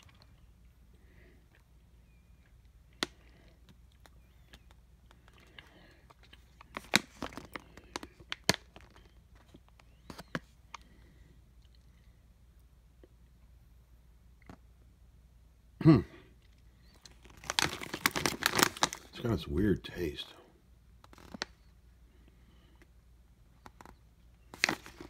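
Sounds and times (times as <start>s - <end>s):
snack pouch crinkling: 0.0s - 0.6s, 2.3s - 11.0s, 16.8s - 19.3s, 21.0s - 21.7s, 23.6s - 25.0s.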